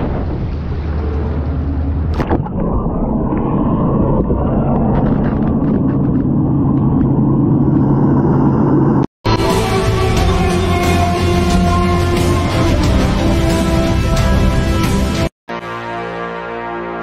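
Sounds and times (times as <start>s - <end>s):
muffled underwater rumble: 0.0s - 9.0s.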